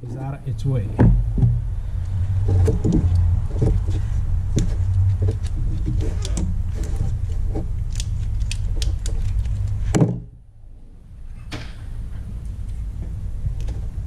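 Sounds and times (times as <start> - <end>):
steady low hum: 0.0 - 14.0
small clicks and rattles: 2.5 - 9.8.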